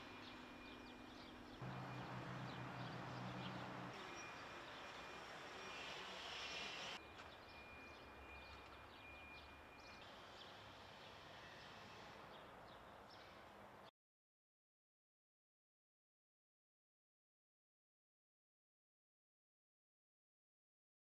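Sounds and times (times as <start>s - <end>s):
vehicle engine humming: 0.0s - 7.0s
distant road traffic: 0.0s - 13.9s.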